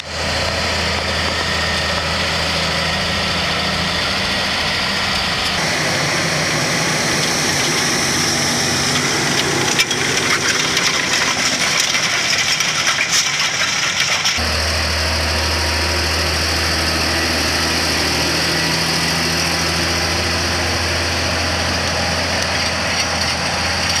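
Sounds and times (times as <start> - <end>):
disc harrow working soil: 0.0 - 24.0
tractor diesel engine running: 0.0 - 24.0
metallic rattles and clicks: 8.9 - 14.4.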